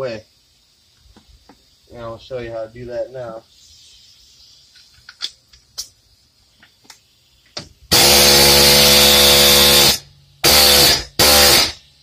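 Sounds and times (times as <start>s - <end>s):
pneumatic air hammer hammering: 7.6s - 11.9s.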